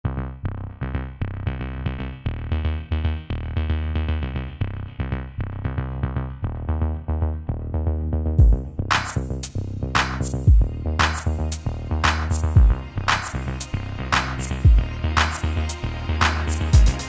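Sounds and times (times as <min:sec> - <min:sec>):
deep bass line: 0:00.0 - 0:17.0
repeating pitched notes: 0:08.3 - 0:17.0.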